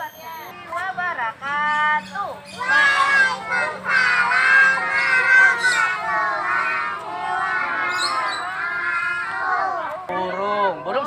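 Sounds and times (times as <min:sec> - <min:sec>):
children calling out sing-song: 0:02.5 - 0:10.4.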